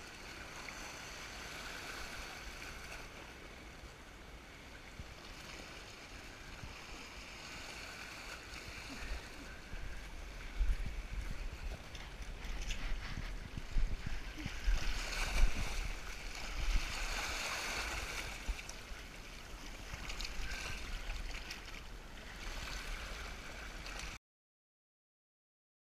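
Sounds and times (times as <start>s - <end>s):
sea surf washing over rocks: 4.9s - 24.2s.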